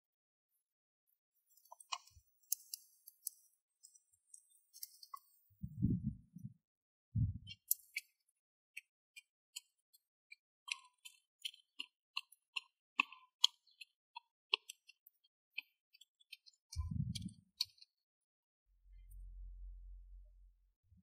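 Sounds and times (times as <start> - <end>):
low thump: 16.8 - 17.3.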